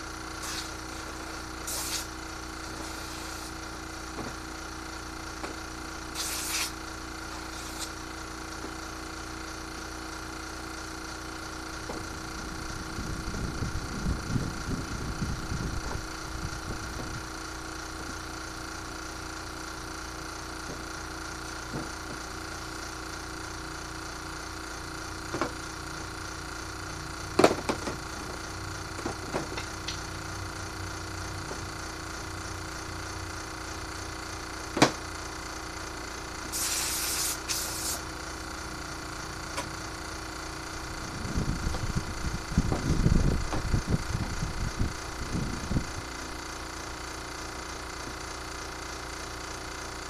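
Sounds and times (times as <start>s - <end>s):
steady machine hum: 0.0s - 50.0s
short hisses: 1.6s - 2.1s, 6.1s - 6.7s, 36.5s - 38.0s.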